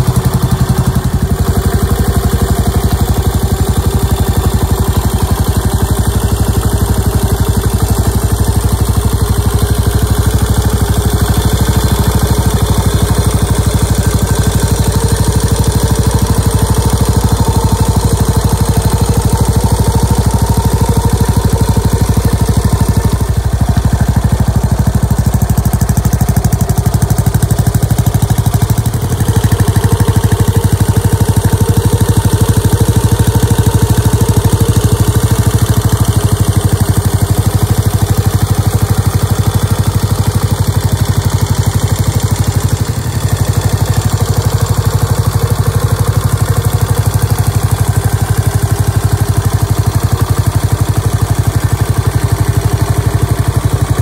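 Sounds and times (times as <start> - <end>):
motorcycle engine idling: 0.0 - 54.0.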